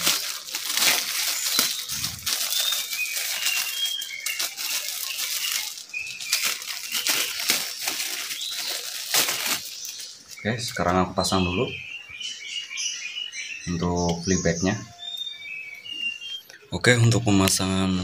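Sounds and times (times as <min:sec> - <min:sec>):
plastic bag crinkling: 0:00.0 - 0:10.9
small bird chirping: 0:00.2 - 0:17.5.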